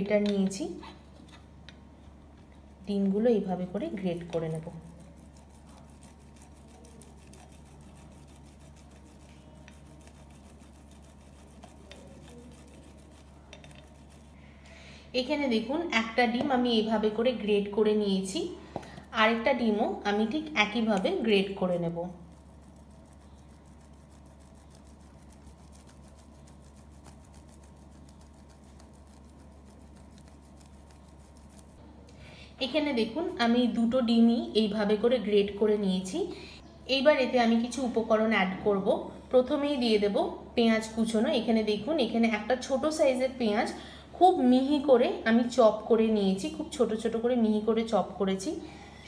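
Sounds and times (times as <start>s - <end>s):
low steady hum: 0.0s - 49.0s
egg scraping on hand grater: 4.0s - 14.4s, 21.0s - 31.8s
low hum: 16.8s - 34.0s.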